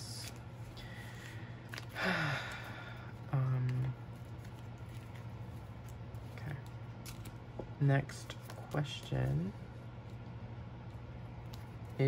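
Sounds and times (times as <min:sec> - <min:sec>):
low background hum: 0:00.0 - 0:12.0
person sighing: 0:01.7 - 0:03.7.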